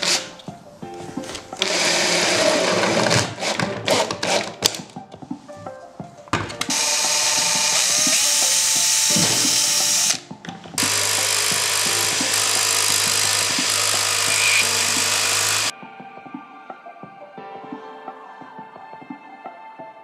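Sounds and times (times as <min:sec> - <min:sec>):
electric jigsaw cutting board: 0:00.0 - 0:00.3, 0:01.6 - 0:04.7, 0:06.7 - 0:10.2, 0:10.8 - 0:15.7
power tool running: 0:01.6 - 0:04.5, 0:06.7 - 0:10.2, 0:10.8 - 0:15.7.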